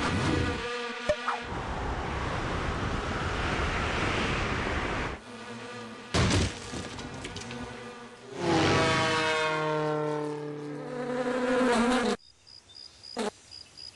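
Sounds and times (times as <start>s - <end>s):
insect wings buzzing: 5.2s - 13.9s.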